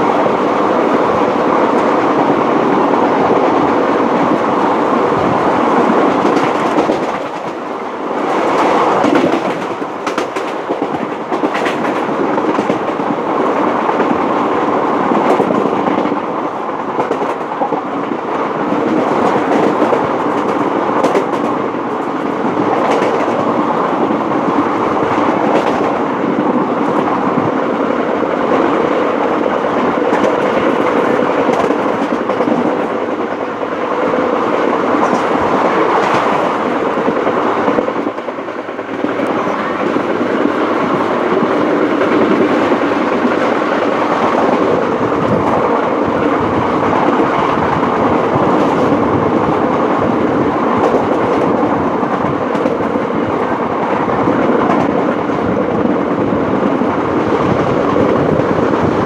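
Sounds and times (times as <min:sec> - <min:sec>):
train wheels rumbling on rails: 0:00.0 - 0:59.0
wheels clicking over rail joints: 0:05.7 - 0:14.2.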